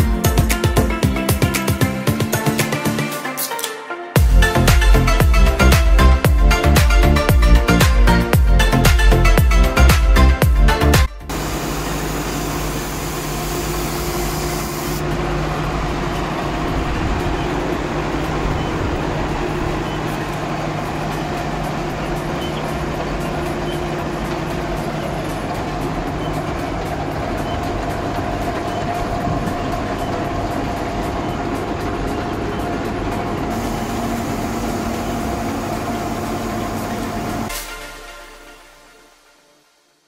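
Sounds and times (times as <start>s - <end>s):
drilling rig engine drone: 10.8s - 38.7s.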